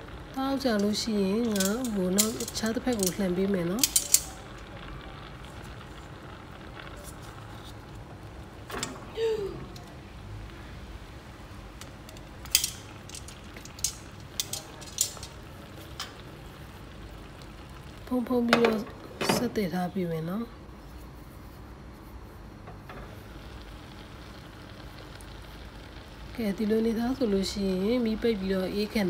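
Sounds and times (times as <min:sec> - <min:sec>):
metal tongs clicking on a pan: 0:00.7 - 0:04.6, 0:11.8 - 0:16.2.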